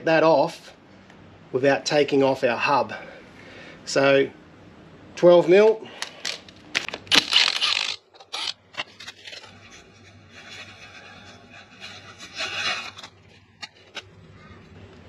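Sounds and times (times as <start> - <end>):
impact wrench running: 7.0 - 8.6.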